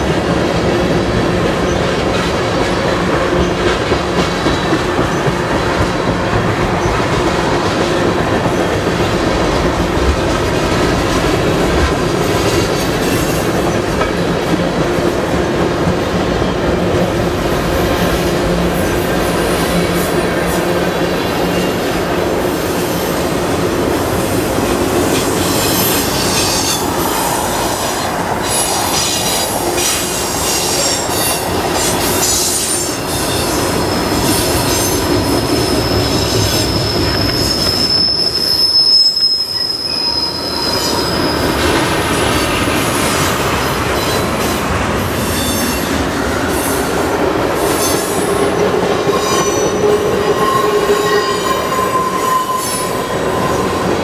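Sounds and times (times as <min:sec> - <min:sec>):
train wheels rumbling on rails: 0:00.0 - 0:54.0
high-pitched wheel squeal: 0:35.7 - 0:41.6.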